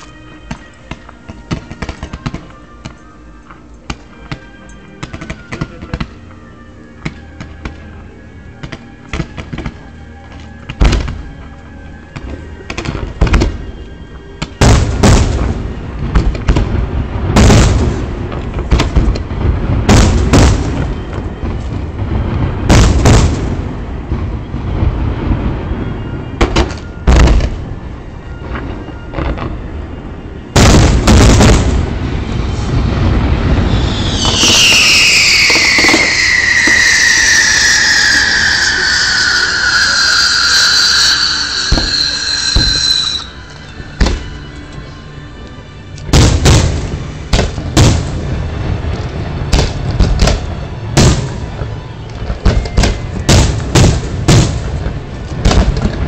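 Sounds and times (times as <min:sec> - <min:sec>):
fireworks bangs and booms: 0:14.6 - 0:27.8, 0:30.5 - 0:43.3, 0:46.1 - 0:56.0
high whistling squeal: 0:32.2 - 0:45.3.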